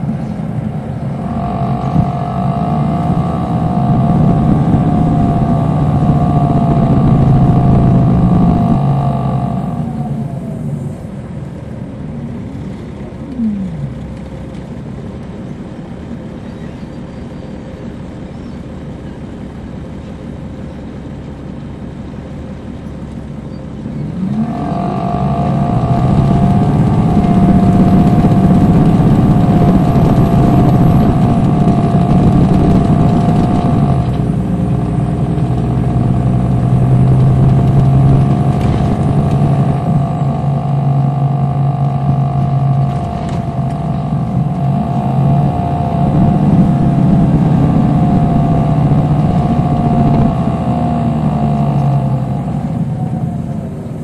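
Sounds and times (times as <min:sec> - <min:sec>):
diesel engine with high whine: 0:00.0 - 0:54.0.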